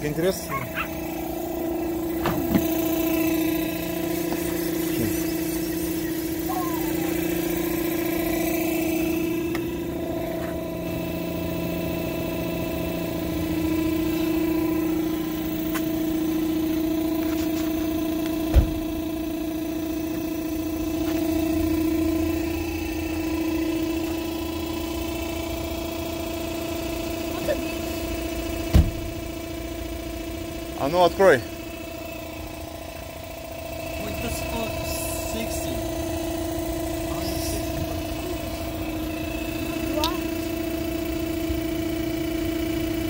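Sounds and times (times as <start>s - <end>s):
electric air pump humming: 0.2s - 26.1s
sharp low thump: 18.5s - 18.9s, 28.7s - 29.1s.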